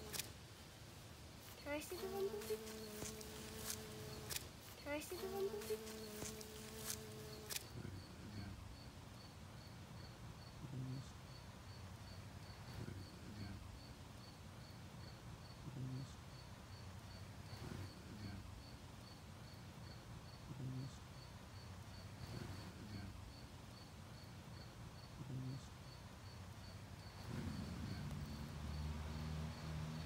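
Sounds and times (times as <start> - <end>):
bumblebee buzzing: 0.0 - 0.3, 1.4 - 7.8, 26.9 - 30.0
insect chirping: 0.0 - 30.0.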